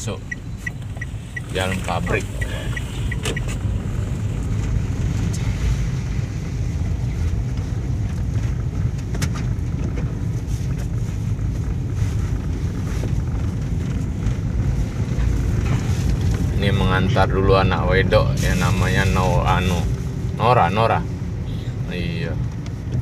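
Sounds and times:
car engine rumble: 0:00.0 - 0:23.0
tyres on wet road: 0:00.0 - 0:23.0.

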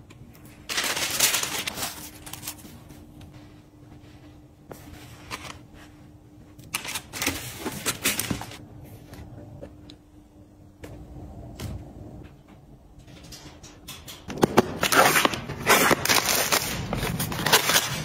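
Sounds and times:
tissue paper rustling: 0:00.7 - 0:02.9.

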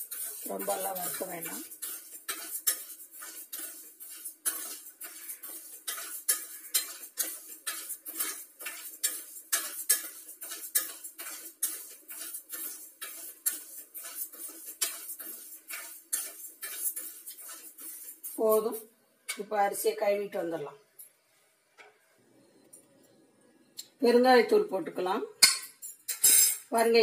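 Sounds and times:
spoon scraping a metal pan: 0:00.0 - 0:19.5, 0:25.4 - 0:26.8.

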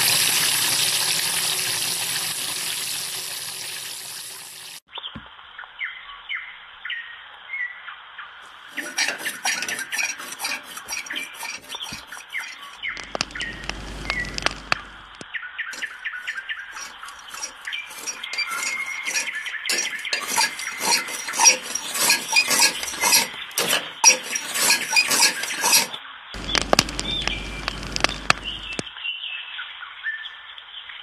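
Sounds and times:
rotisserie spit clinking: 0:08.7 - 0:15.2, 0:15.8 - 0:28.9
low hum: 0:12.8 - 0:15.2.

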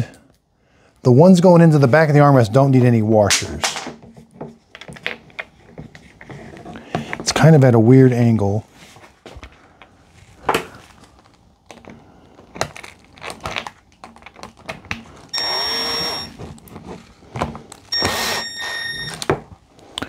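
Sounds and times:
screw gun motor whining: 0:15.3 - 0:16.4, 0:17.9 - 0:19.2.

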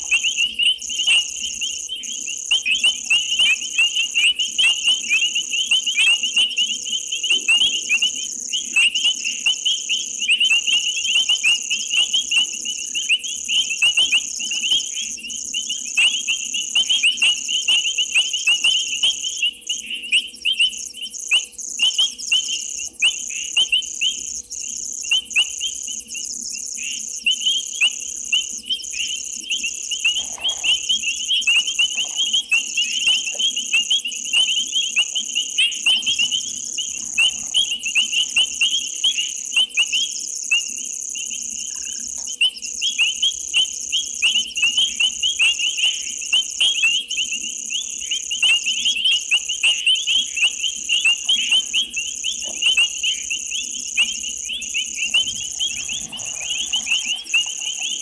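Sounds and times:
faint steady hum: 0:00.0 - 0:58.0
frogs chirping: 0:00.0 - 0:58.0
insect drone: 0:00.0 - 0:58.0.

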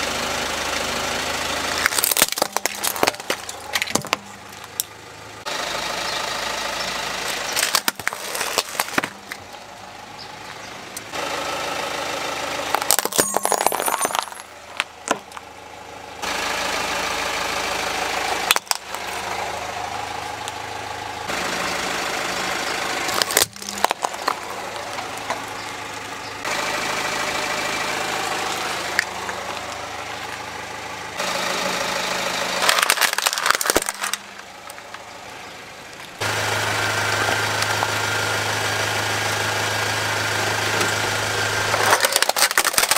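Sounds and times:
car engine idling: 0:00.0 - 0:42.9
plastic toys cracking and crunching: 0:01.8 - 0:04.9, 0:07.3 - 0:09.4, 0:12.7 - 0:15.5, 0:18.4 - 0:19.2, 0:23.1 - 0:25.8, 0:32.6 - 0:35.0, 0:41.7 - 0:42.9.

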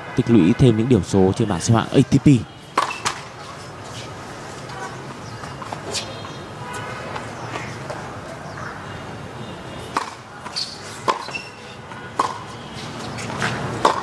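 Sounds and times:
tennis ball bouncing on hard court: 0:02.7 - 0:03.3, 0:09.9 - 0:14.0.

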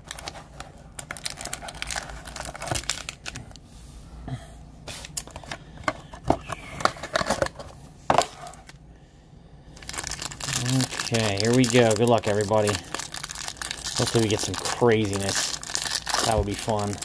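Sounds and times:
foil wrapper crinkling: 0:00.0 - 0:03.6, 0:09.8 - 0:17.0.

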